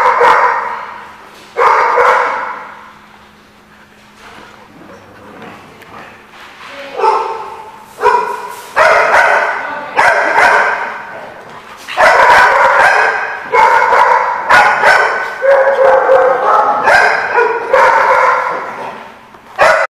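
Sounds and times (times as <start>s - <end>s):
dogs barking: 0.0s - 1.0s, 1.6s - 3.0s, 7.0s - 19.9s.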